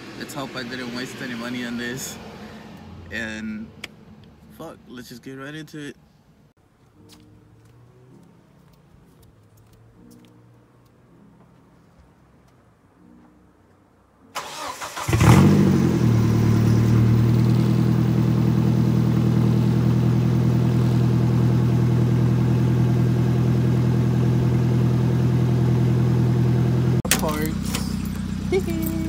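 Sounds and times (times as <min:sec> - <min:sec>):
engine starter cranking: 0:14.4 - 0:15.6
car engine idling: 0:14.4 - 0:29.0.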